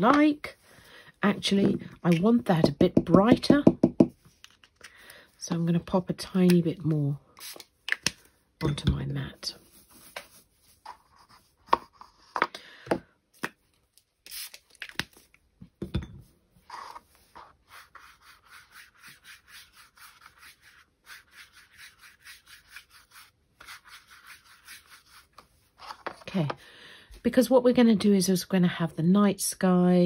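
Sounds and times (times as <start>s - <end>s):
brush stroking across paper: 9.5s - 12.3s, 16.6s - 26.1s.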